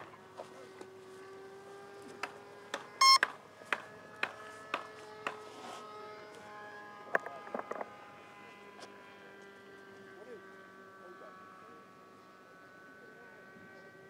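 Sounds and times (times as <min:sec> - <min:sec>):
high-pitched electronic beep: 0:03.0 - 0:03.2.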